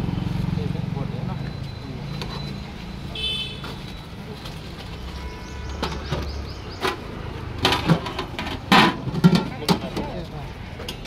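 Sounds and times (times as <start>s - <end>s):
low traffic hum: 0.0s - 11.0s.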